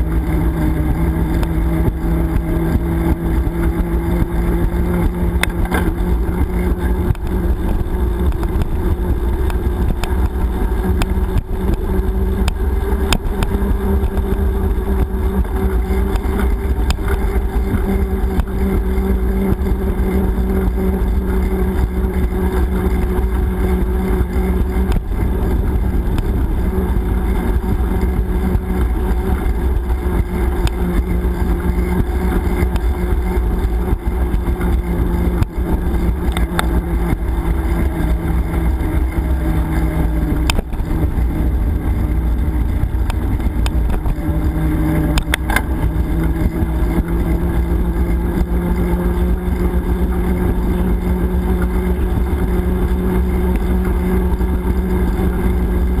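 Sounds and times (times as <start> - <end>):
steady low hum: 0.0 - 56.0
wind noise on microphone: 0.0 - 56.0
bike clicks and knocks: 5.0 - 6.0, 45.1 - 45.8.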